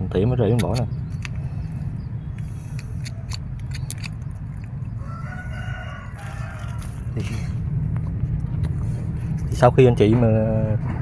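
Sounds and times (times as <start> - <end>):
steady low hum: 0.0 - 11.0
pruning snips clicking: 0.5 - 1.4, 2.4 - 4.8
rooster crowing: 4.9 - 7.2.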